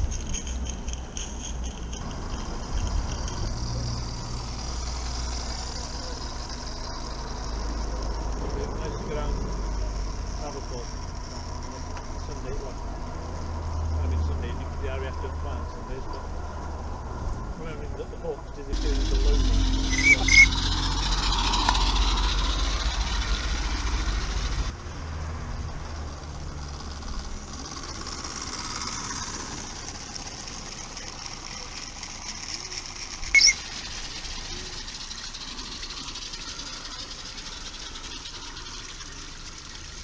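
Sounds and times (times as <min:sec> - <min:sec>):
model train wheels rattling on rails: 0:00.0 - 0:17.0, 0:17.6 - 0:40.0
short high chirp: 0:19.8 - 0:20.6, 0:33.3 - 0:33.7.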